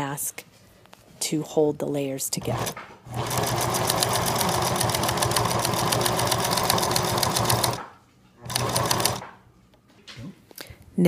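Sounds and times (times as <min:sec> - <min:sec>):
sewing machine stitching: 0:02.4 - 0:09.3.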